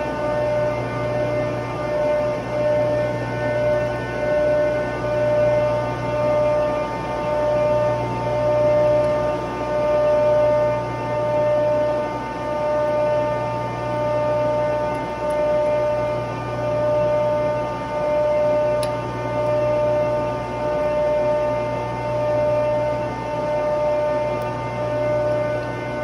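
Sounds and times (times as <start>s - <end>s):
industrial machinery drone: 0.0s - 26.0s.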